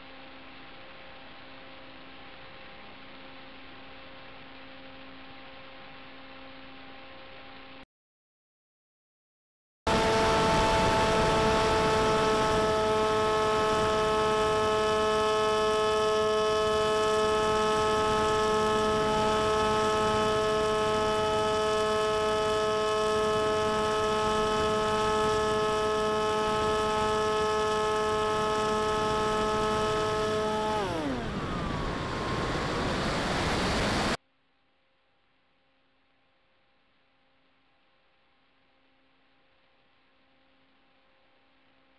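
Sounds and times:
electric motor and propeller: 9.9s - 34.2s.

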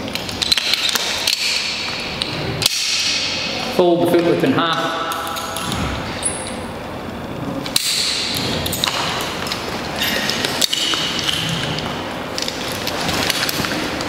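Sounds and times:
metal climbing hardware clinking: 7.6s - 14.0s.

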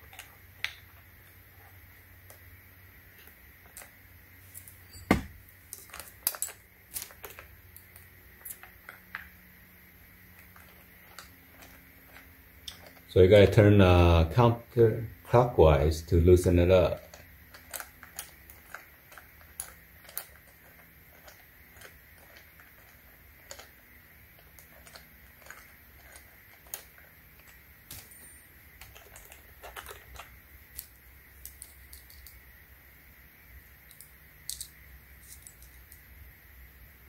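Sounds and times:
small metal clicks: 17.0s - 32.4s, 33.8s - 36.1s.

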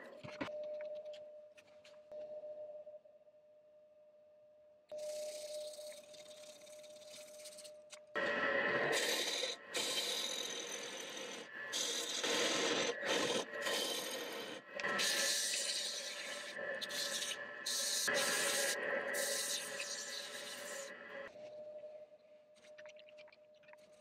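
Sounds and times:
tool scraping spinning wood: 5.0s - 21.1s
wood lathe whine: 5.0s - 21.5s.

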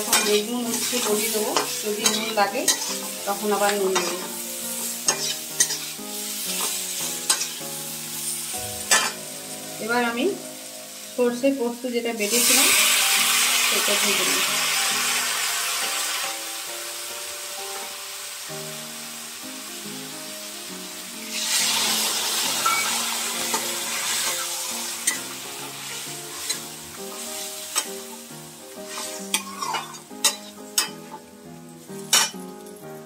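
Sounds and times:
metal spatula scraping a pan: 0.0s - 7.6s, 8.2s - 9.2s, 22.6s - 31.2s, 32.0s - 32.4s
vegetables sizzling in oil: 0.0s - 33.0s.

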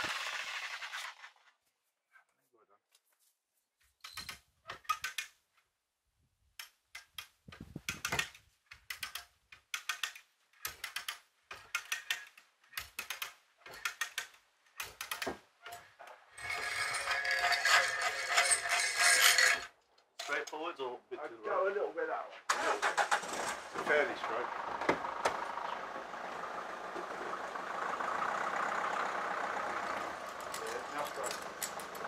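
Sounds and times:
ratchet strap clicking: 6.6s - 15.9s.

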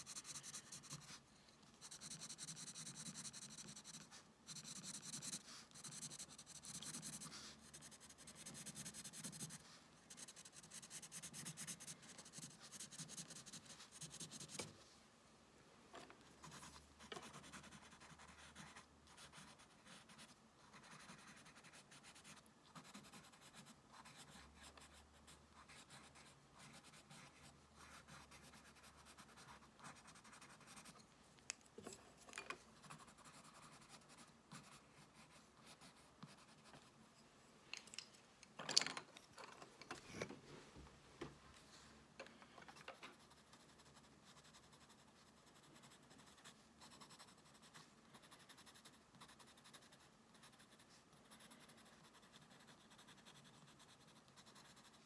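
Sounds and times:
pencil crayon scratching on paper: 0.0s - 14.7s, 16.4s - 31.0s, 32.8s - 36.9s, 43.1s - 55.0s.

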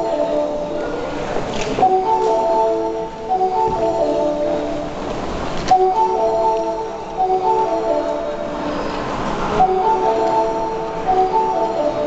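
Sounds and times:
electronic chime melody: 1.8s - 5.1s, 5.7s - 12.0s.

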